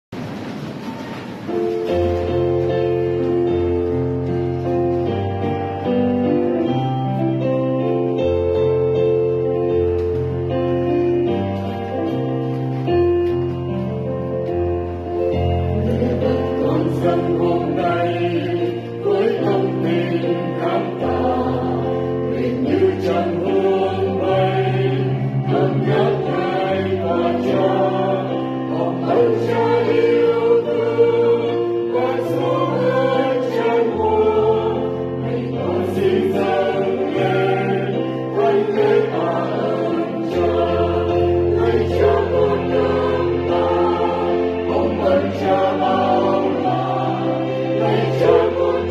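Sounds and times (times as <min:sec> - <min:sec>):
mixed choir singing a hymn: 0:14.9 - 0:48.9.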